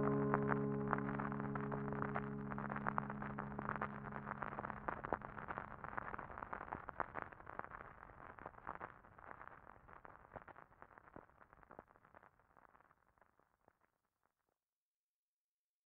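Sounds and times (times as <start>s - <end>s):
slowed-down song: 0.0s - 5.9s
crackling noise with clicks: 0.0s - 14.5s.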